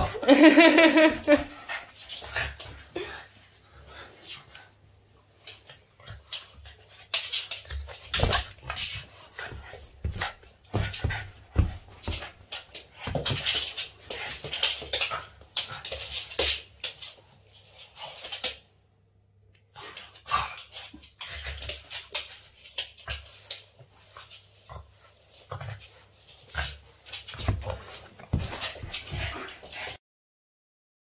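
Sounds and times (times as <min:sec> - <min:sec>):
dog claws scrabbling on floor: 0:06.2 - 0:18.6, 0:25.6 - 0:30.0.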